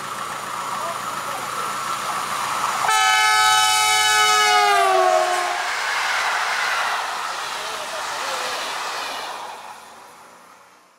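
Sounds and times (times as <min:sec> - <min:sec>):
passenger coaches rolling past: 0:00.0 - 0:10.9
locomotive horn blast: 0:02.8 - 0:05.8.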